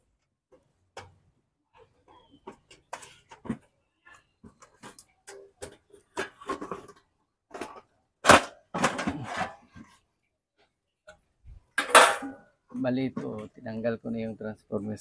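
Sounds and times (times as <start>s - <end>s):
metal scraping and rattling: 6.0s - 9.9s.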